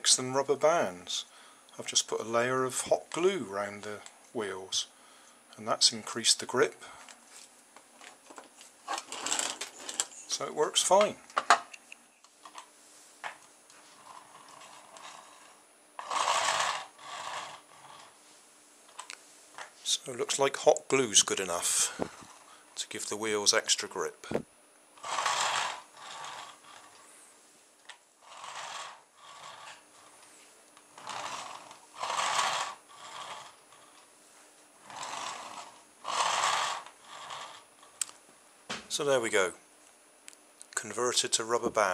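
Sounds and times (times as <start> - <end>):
toy car wheels rolling rush: 8.9 - 10.1, 14.0 - 18.2, 25.0 - 27.0, 28.2 - 30.2, 31.0 - 34.1, 34.9 - 37.7
toy car wheels rubbing on floor: 8.9 - 11.1, 13.7 - 19.1, 21.6 - 22.6, 25.0 - 27.2, 28.2 - 34.1, 34.8 - 38.0.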